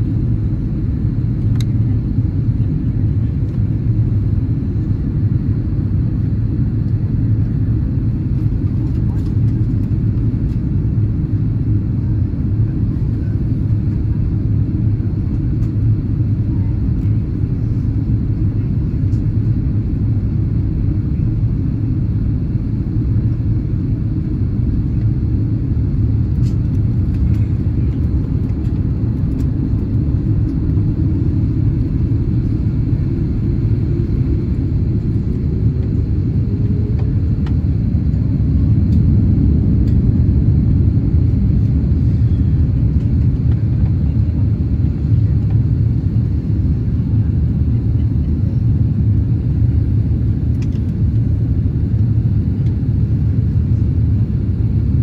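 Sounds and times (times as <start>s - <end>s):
aircraft cabin engine rumble: 0.0s - 55.0s.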